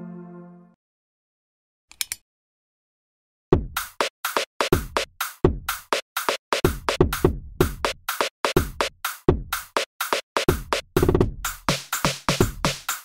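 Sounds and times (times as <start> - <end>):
electronic music with drum-machine beat: 3.6 - 13.0.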